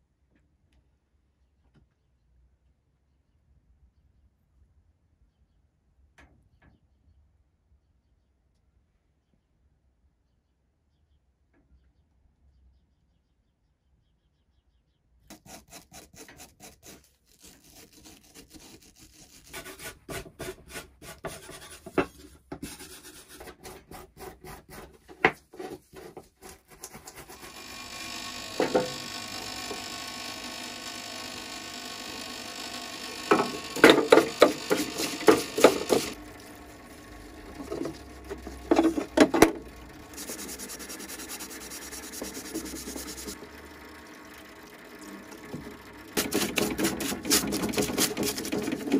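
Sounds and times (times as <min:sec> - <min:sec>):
brush scrubbing metal parts: 0:15.3 - 0:27.5, 0:33.3 - 0:36.2, 0:37.5 - 0:43.4, 0:46.2 - 0:48.9
fluid rushing in parts washer: 0:25.8 - 0:48.9.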